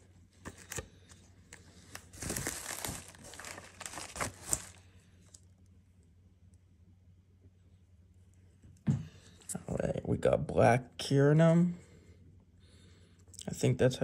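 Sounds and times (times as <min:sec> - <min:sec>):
plastic packaging crinkling: 0:00.4 - 0:05.5.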